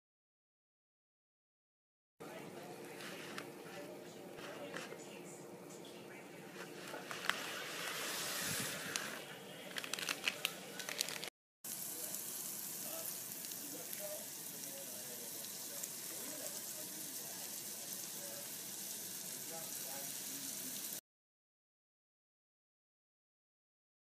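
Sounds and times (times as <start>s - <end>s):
vegetables sizzling in oil: 7.4s - 9.0s, 11.7s - 21.0s
water boiling and bubbling: 10.8s - 21.0s.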